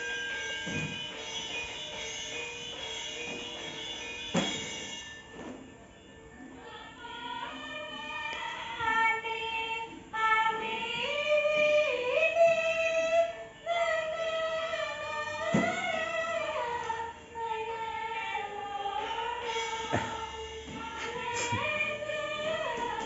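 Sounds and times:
gamelan music: 0.0 - 6.6, 18.9 - 23.0
person singing long sliding notes: 6.6 - 23.0.

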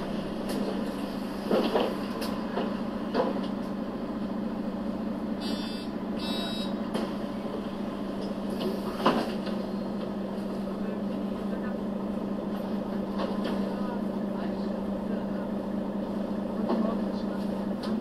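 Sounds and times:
bus engine hum: 0.0 - 18.0
short buzzer tones: 5.4 - 6.7.

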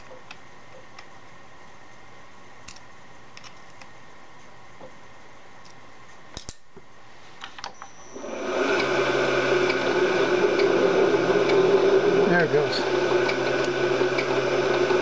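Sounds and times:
milling machine motor humming: 7.9 - 15.0.

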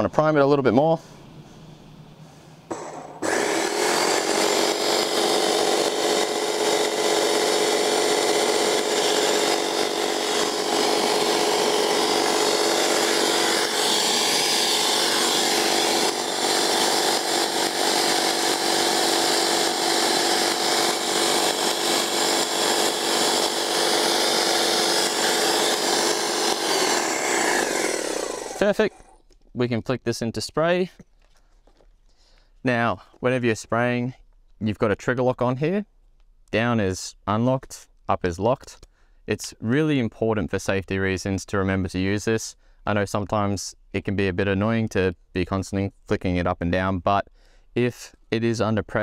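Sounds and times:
paint sprayer pump drone: 2.7 - 29.2.

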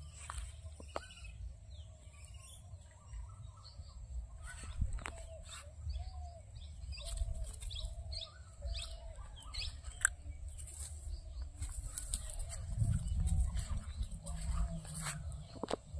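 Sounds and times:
birds chirping: 0.0 - 15.9
low rumble: 8.8 - 15.9.

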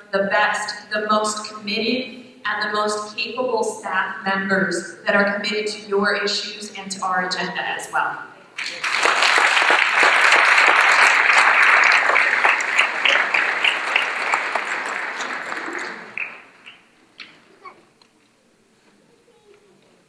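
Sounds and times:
audience applauding: 8.6 - 16.9.

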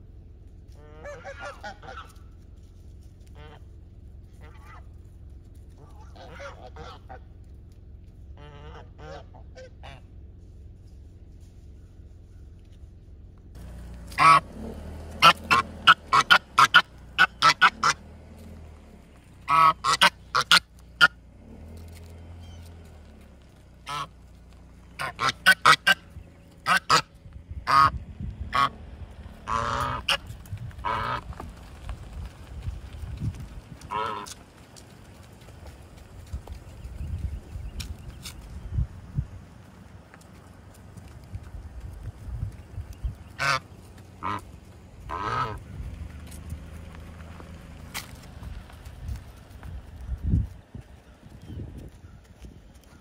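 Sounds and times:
geese honking: 0.7 - 2.4, 3.2 - 5.0, 5.6 - 7.3, 8.3 - 10.1, 13.6 - 32.4, 33.7 - 36.8, 43.0 - 49.6.

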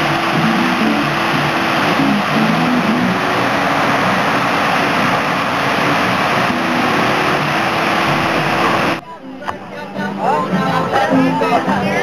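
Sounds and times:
ocean surf breaking: 0.0 - 9.0.

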